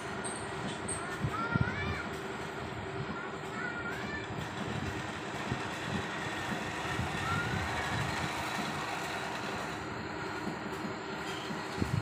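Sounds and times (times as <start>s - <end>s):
wind buffeting microphone: 4.2s - 9.4s, 11.5s - 12.0s.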